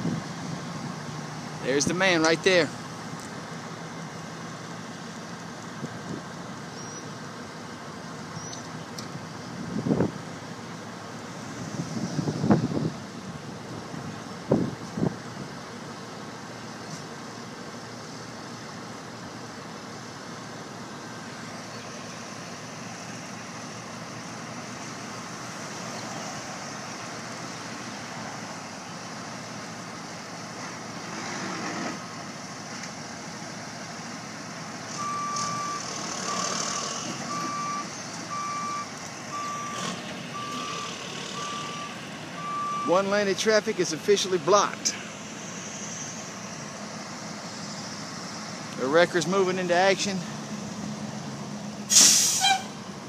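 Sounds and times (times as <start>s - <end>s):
road traffic passing: 0.0s - 53.0s
truck reverse alarm beeping: 34.9s - 43.3s
heavy vehicle passing: 35.3s - 38.3s.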